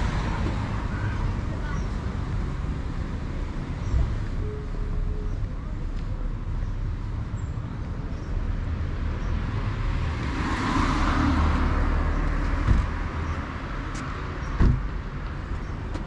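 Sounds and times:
low traffic rumble: 0:00.0 - 0:16.0
car passing by: 0:09.4 - 0:14.2.

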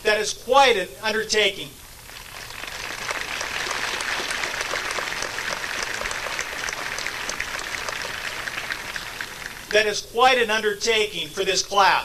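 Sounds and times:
audience applause: 0:02.1 - 0:09.8.

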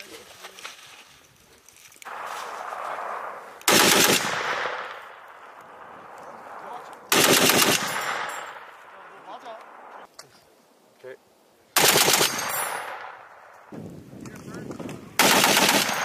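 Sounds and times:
heavy machine gun bursts: 0:03.7 - 0:04.6, 0:07.1 - 0:08.3, 0:11.8 - 0:13.0, 0:15.2 - 0:16.0.

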